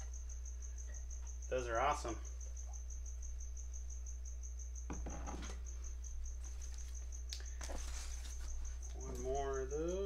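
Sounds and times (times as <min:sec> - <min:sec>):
cricket chirping: 0:00.0 - 0:10.0
cardboard and acrylic rustles and knocks: 0:04.9 - 0:05.6.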